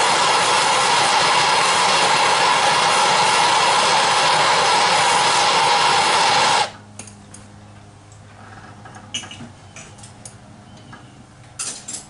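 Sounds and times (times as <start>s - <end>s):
hand torch hissing: 0.0s - 6.8s.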